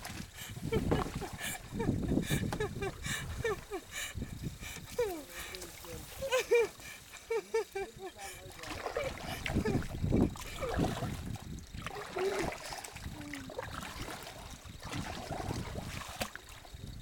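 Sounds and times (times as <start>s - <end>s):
paddle dipping into water: 0.0s - 17.0s.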